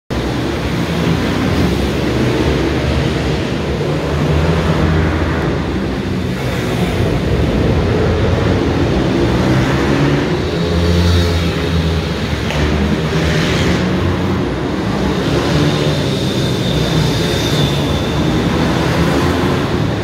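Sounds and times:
small motorbike engines revving: 0:00.1 - 0:20.0.

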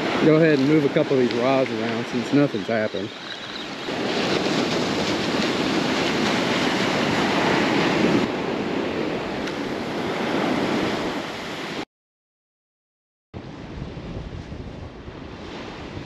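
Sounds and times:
surf breaking on sand: 0:00.0 - 0:11.8
wind on microphone: 0:00.0 - 0:11.8, 0:13.4 - 0:16.0.

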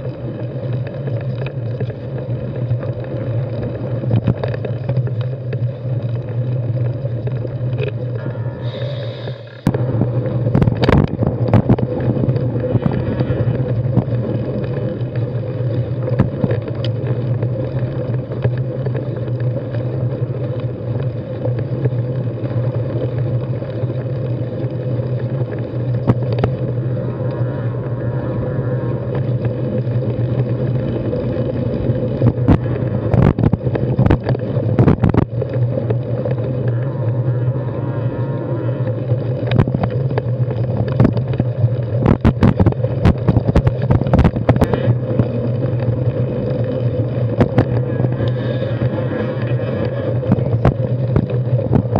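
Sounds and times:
bike knocking and rattling: 0:00.0 - 0:08.3, 0:09.5 - 0:27.1, 0:29.1 - 0:36.8, 0:39.3 - 0:51.9
tyres and wind rumble: 0:00.0 - 0:51.9.

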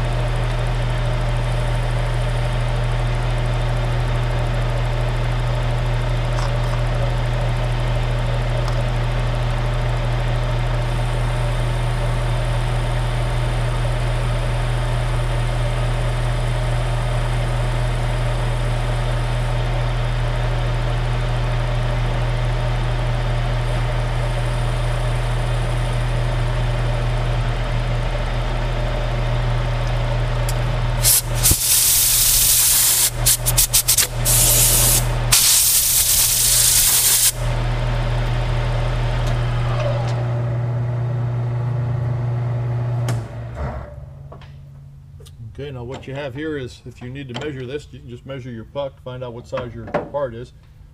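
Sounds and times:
metal lathe motor hum: 0:00.0 - 0:43.3
compressed air blow gun blasts: 0:31.0 - 0:37.4.

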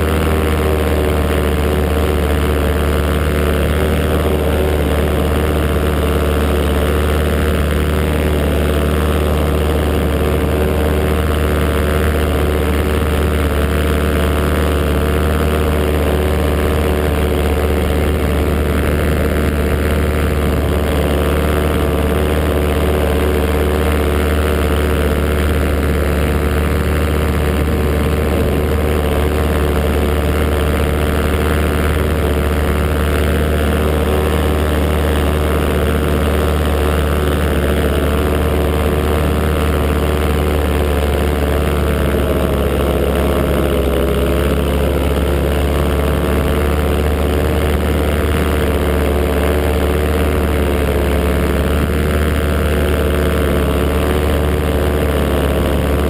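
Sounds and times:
paramotor engine and propeller: 0:00.0 - 0:56.0.

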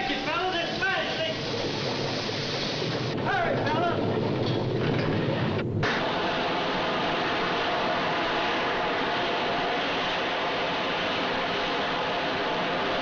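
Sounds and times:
gas and mud roaring: 0:00.2 - 0:13.0
deep rumble: 0:01.1 - 0:11.1.

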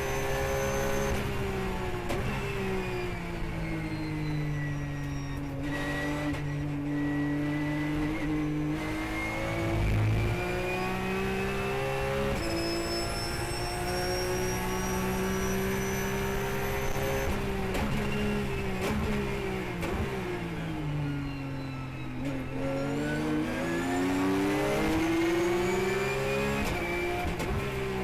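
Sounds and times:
race car engine revving: 0:05.6 - 0:20.3.

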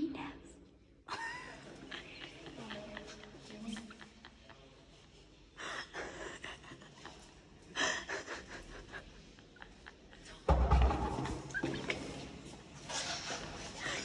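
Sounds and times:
women laughing and gasping: 0:05.5 - 0:10.5, 0:13.6 - 0:14.0.

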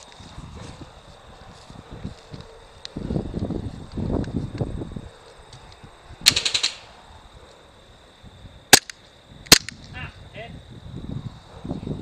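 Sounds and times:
airsoft guns firing: 0:06.3 - 0:06.9.

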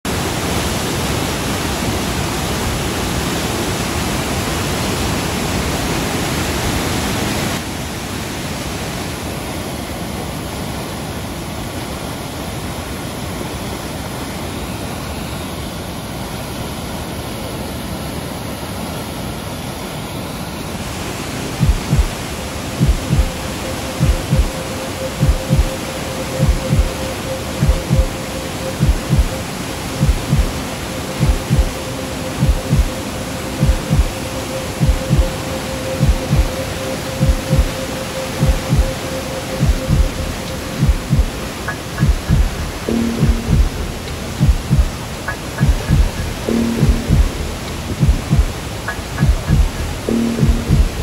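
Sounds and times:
flood water roaring over rock: 0:00.1 - 0:51.0
deep thumps: 0:45.6 - 0:46.2.

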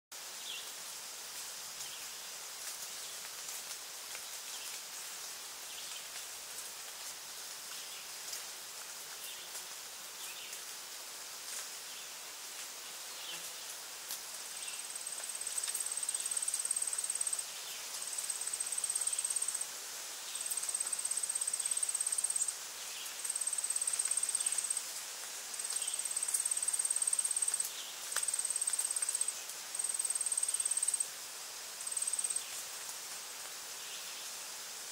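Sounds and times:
steady outdoor hiss: 0:00.1 - 0:34.9
insect buzzing trill: 0:20.6 - 0:22.6, 0:23.2 - 0:24.8, 0:28.3 - 0:31.0, 0:31.8 - 0:32.6
faint chirps: 0:31.8 - 0:32.7.

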